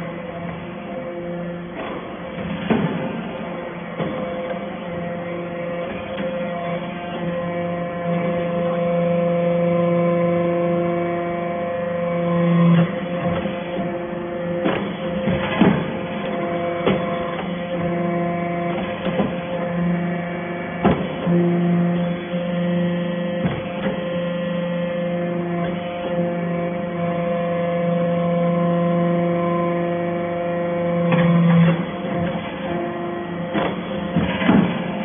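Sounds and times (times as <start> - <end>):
hydraulic unit humming: 0.0 - 35.0.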